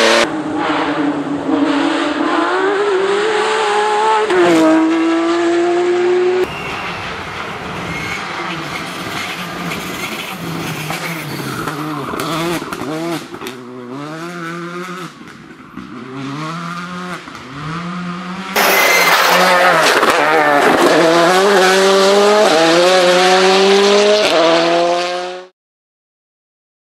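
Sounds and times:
loud car accelerating hard: 0.0s - 6.5s, 8.3s - 15.2s, 15.8s - 25.5s
rally car engine upshifting: 8.0s - 25.4s.

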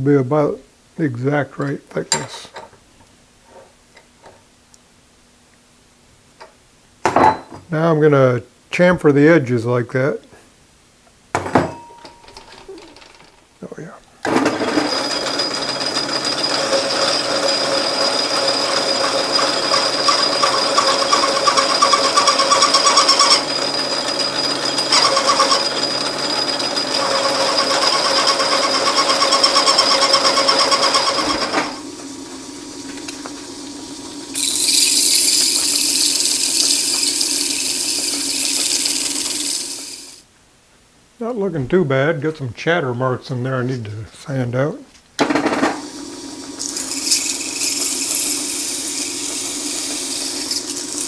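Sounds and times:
lathe tool squealing: 14.4s - 33.4s, 46.6s - 51.0s
abrasive scraping spinning metal: 14.8s - 33.0s.

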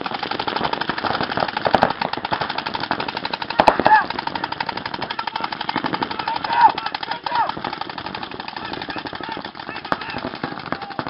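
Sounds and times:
paintball markers firing: 0.0s - 11.0s
players shouting: 2.9s - 11.0s.

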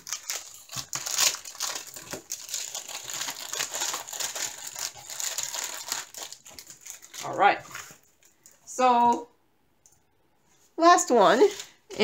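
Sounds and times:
plastic packaging crinkling: 0.0s - 8.7s.

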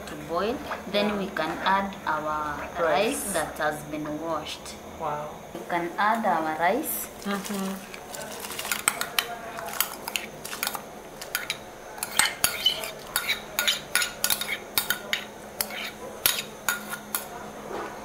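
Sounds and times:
metal spoon scraping a pot: 8.6s - 17.2s.

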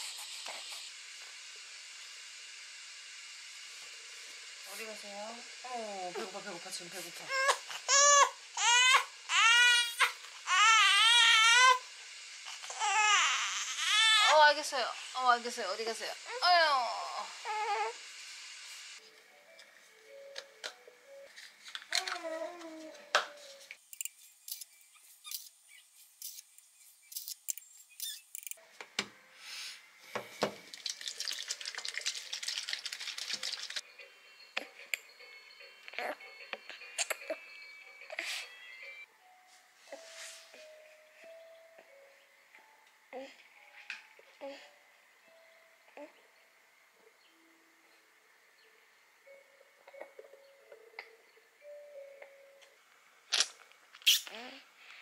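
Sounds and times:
infant crying: 7.3s - 14.5s, 17.2s - 18.0s
bottle shaken sloshing: 30.6s - 33.8s.

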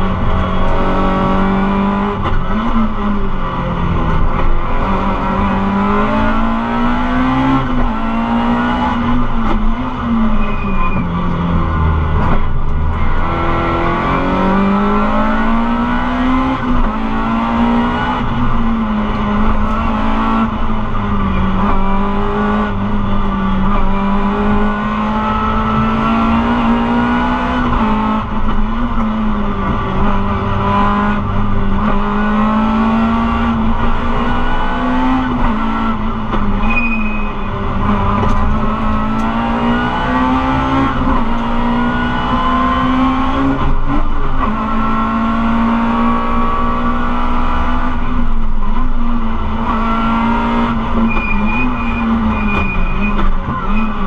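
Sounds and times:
road noise: 0.0s - 54.0s
car engine revving from inside cabin: 13.0s - 36.7s, 37.4s - 54.0s.

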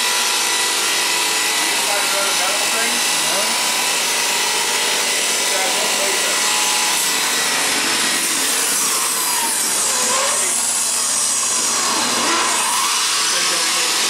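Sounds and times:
power saw cutting wood: 0.0s - 14.0s.

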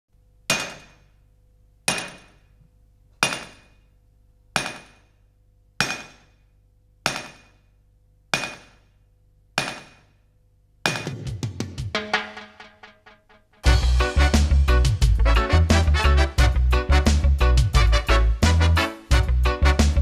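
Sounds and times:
faint steady hum: 0.1s - 11.1s
hammer blows ringing: 0.5s - 1.1s, 1.9s - 2.4s, 3.2s - 3.8s, 4.6s - 5.2s, 5.8s - 6.4s, 7.1s - 7.6s, 8.4s - 8.9s, 9.6s - 10.1s, 10.8s - 11.4s.

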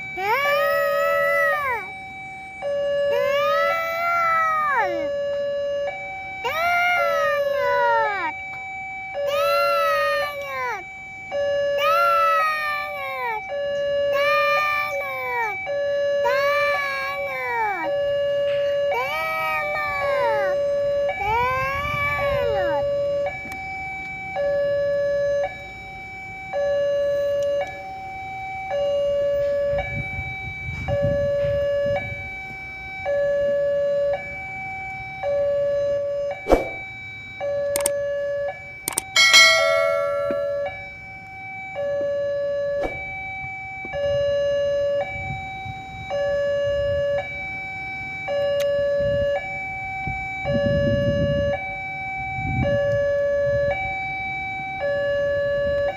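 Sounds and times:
level crossing two-tone alarm: 0.0s - 55.9s
sharp clicks: 37.8s - 38.0s, 38.9s - 39.1s
vehicle engines idling: 37.8s - 42.3s.

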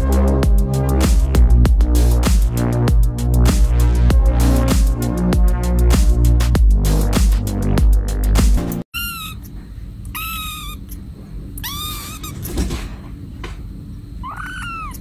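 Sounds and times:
electronic music: 0.0s - 8.8s
kitten mewing: 9.0s - 11.0s, 11.6s - 12.5s, 14.2s - 15.0s.

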